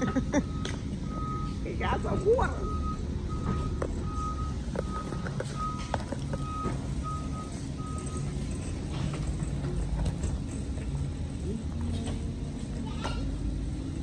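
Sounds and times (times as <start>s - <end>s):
backup alarm beeping: 0.0s - 9.7s.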